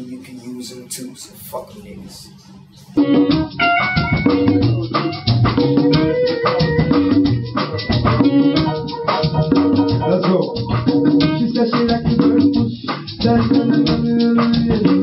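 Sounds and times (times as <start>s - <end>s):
drum kit beat: 3.0s - 15.0s.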